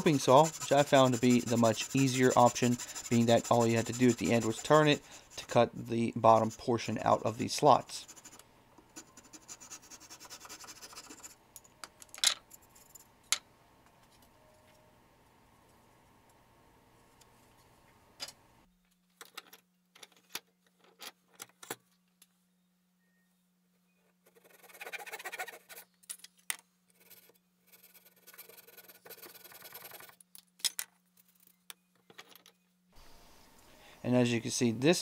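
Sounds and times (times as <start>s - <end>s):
hand saw cutting wood: 0.0s - 5.6s.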